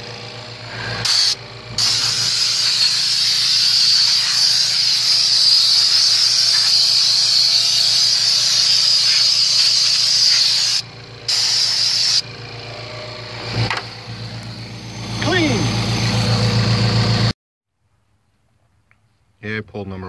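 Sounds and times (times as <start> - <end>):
engine idling: 0.0 - 17.3
loud air hiss from vacuum line: 0.7 - 12.2.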